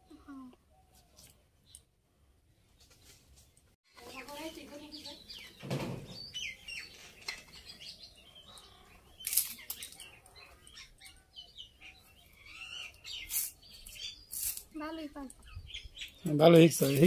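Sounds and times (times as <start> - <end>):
small birds chirping: 0.0 - 17.0
blade scraping plant stalk: 13.2 - 14.7.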